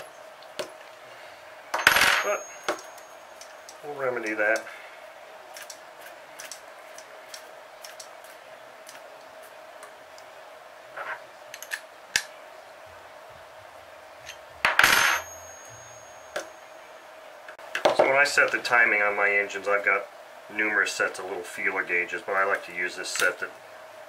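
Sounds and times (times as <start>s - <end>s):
faint steady hum: 0.0s - 24.0s
metal clatter with ring: 1.8s - 3.7s.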